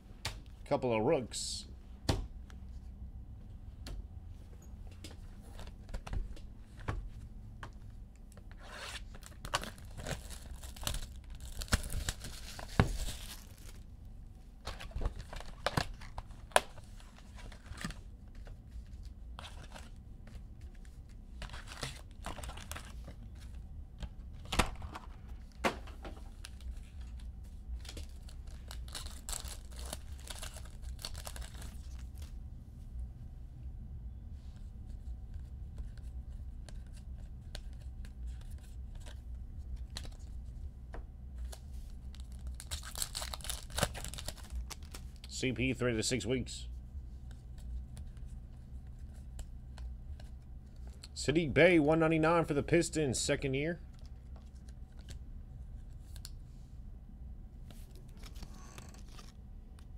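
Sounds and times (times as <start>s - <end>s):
wrappers tearing and crinkling: 8.7s - 13.9s, 21.4s - 23.0s, 27.8s - 32.3s, 42.0s - 45.3s, 58.1s - 59.4s.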